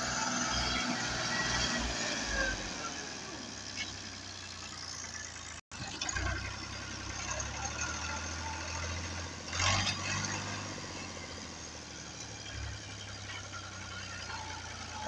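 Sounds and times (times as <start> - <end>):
tractor diesel engine running: 0.0 - 15.0.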